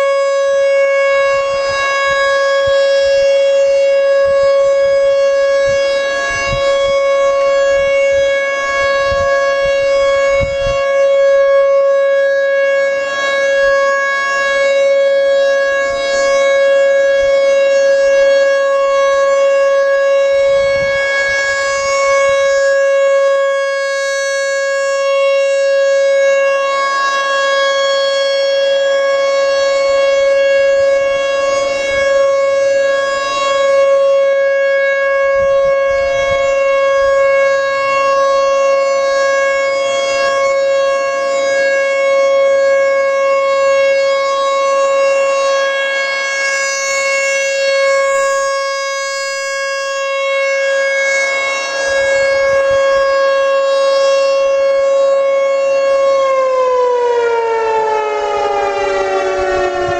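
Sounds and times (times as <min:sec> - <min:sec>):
warning siren steady tone: 0:00.0 - 0:59.9.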